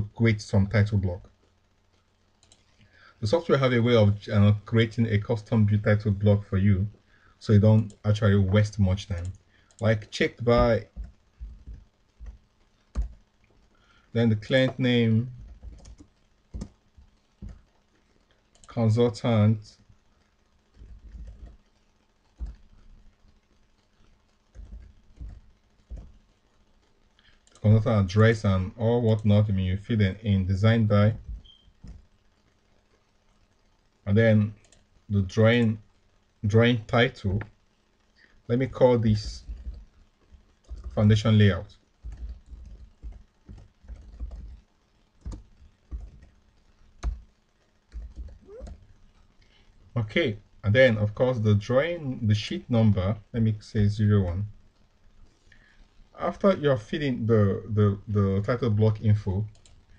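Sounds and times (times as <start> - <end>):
keyboard typing: 2.4 - 2.9, 7.6 - 19.4, 20.7 - 29.4, 30.6 - 32.2, 34.6 - 35.8, 38.6 - 49.6, 59.5 - 59.9
typing on a keyboard: 10.6 - 13.2, 14.6 - 17.8, 20.7 - 23.0, 24.5 - 26.2, 39.1 - 41.2, 42.0 - 46.4, 47.9 - 48.9.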